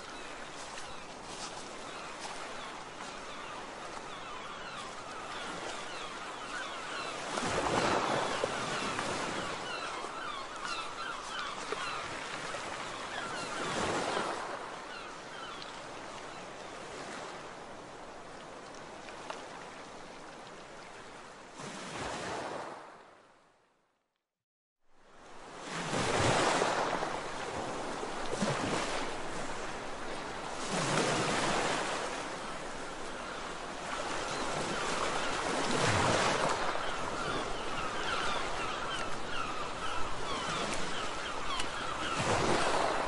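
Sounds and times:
waves washing: 0.0s - 15.6s, 25.2s - 43.0s.

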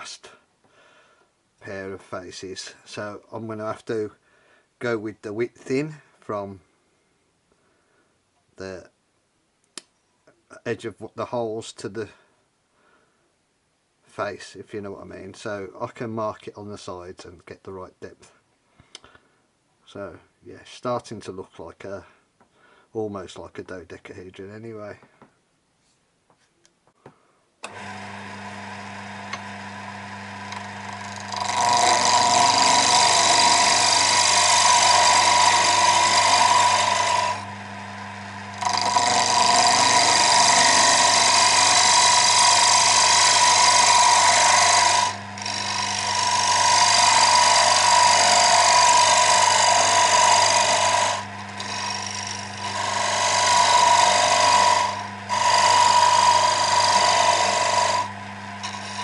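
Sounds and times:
tool cutting spinning wood: 27.6s - 59.0s
lathe motor running: 27.7s - 59.0s.

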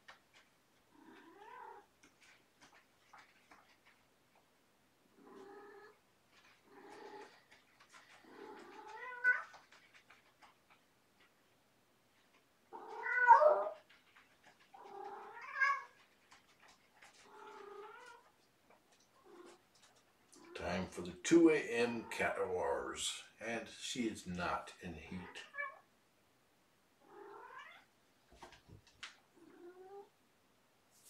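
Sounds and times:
cat yowling: 8.3s - 9.6s, 12.7s - 13.8s, 14.8s - 16.0s.

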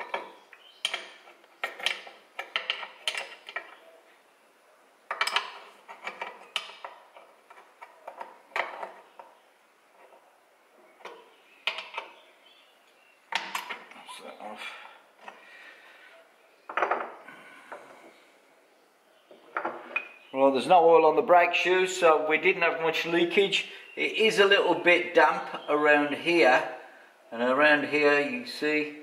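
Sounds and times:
metal lever clicking and scraping: 0.0s - 3.9s, 5.1s - 9.3s.

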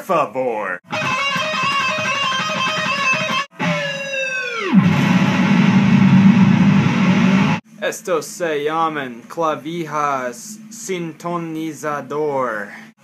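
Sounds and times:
electric guitar with vibrato: 0.8s - 7.6s.

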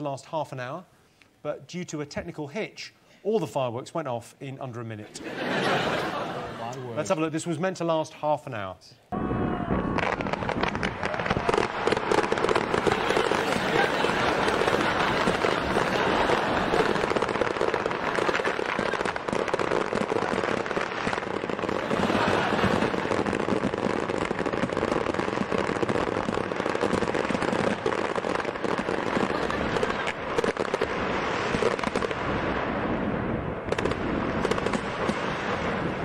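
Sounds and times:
fireworks banging and crackling: 9.2s - 36.0s.

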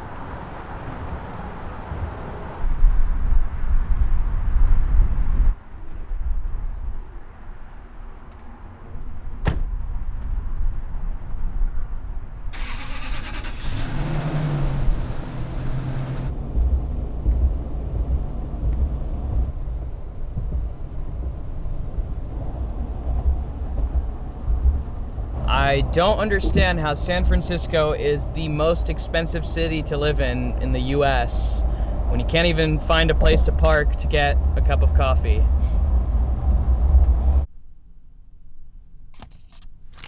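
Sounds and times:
door shutting with a thud: 9.4s - 9.7s
pickup truck engine starting: 12.5s - 16.3s.

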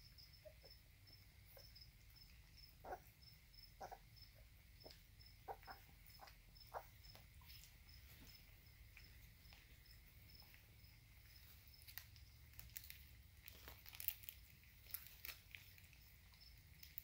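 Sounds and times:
crickets chirping: 0.0s - 13.2s, 15.0s - 17.0s
puppies eating clicks and crinkles: 4.8s - 17.0s.

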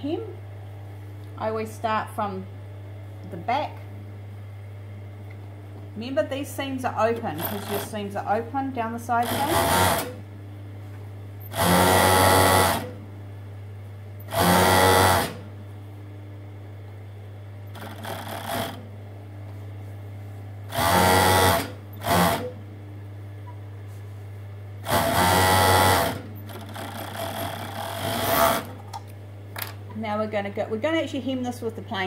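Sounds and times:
motor low hum: 0.0s - 31.0s
overlocker stitching: 7.4s - 8.0s, 9.2s - 10.2s, 17.7s - 18.8s, 20.7s - 22.6s, 24.8s - 29.0s.

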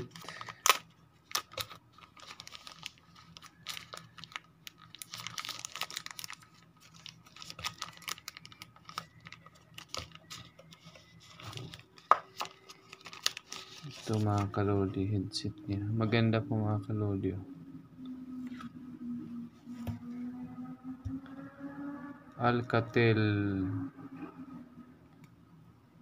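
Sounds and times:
plastic bag crinkling: 0.0s - 14.7s.

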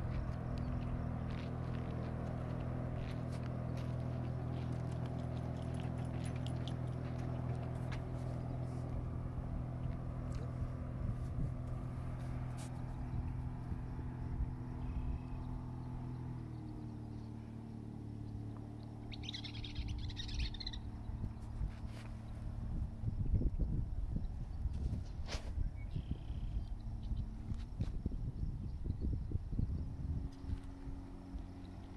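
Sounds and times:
motorboat engine droning: 0.0s - 31.9s
bird calling: 19.0s - 21.0s.

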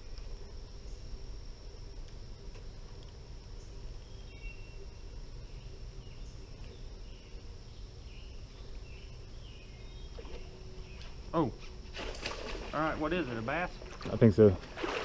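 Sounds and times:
insect drone: 0.0s - 15.0s
bird chirps: 3.6s - 11.5s.

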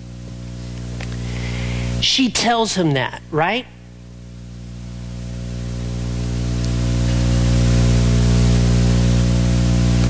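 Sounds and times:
low tone drone: 3.2s - 10.0s.

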